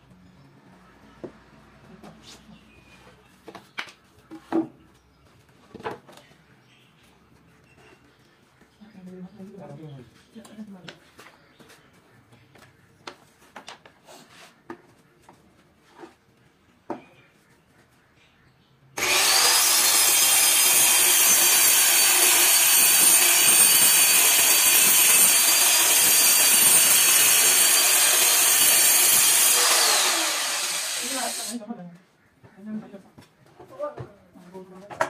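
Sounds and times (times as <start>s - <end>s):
circular saw cutting board: 19.0s - 31.6s.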